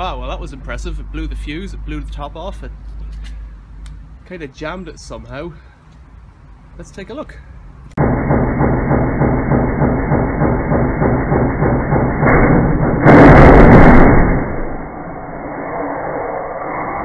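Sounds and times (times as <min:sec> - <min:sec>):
washing machine drum knocking: 0:08.0 - 0:13.1
loud crash: 0:08.0 - 0:17.0.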